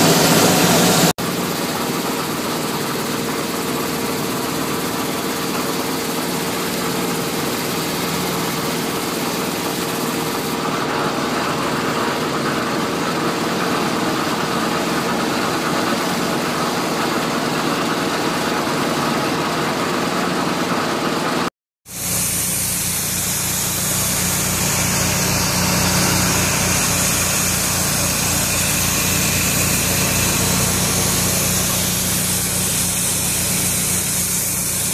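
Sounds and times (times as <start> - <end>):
hiss: 0.0 - 1.1, 21.9 - 34.9
engine-driven machine running: 0.0 - 34.9.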